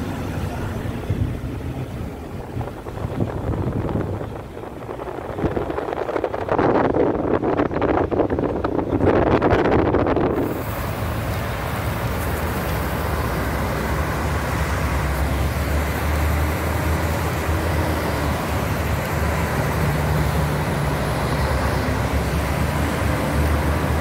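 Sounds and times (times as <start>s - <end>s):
heavy truck passing rumble: 0.0s - 24.0s.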